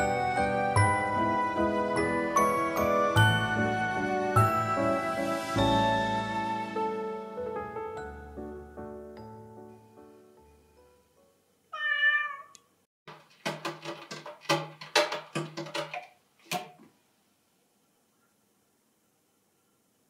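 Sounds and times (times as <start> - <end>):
soft background music: 0.0 - 11.5
cat meowing: 11.7 - 12.7.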